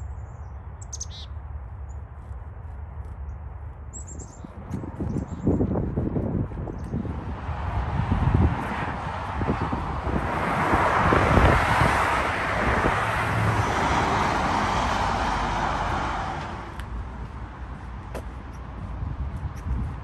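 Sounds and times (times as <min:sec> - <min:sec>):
vehicle driving past: 0:07.2 - 0:16.8.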